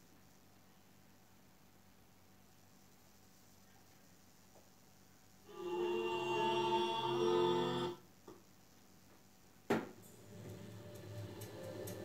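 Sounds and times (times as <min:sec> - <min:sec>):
music with long held chords: 0:10.0 - 0:12.0.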